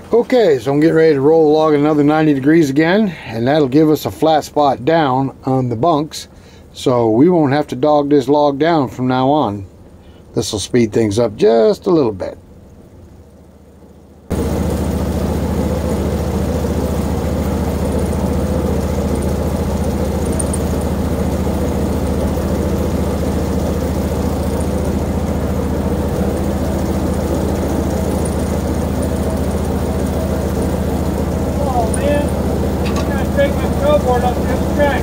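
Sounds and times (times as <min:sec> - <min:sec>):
sawmill engine running: 0:14.3 - 0:35.0.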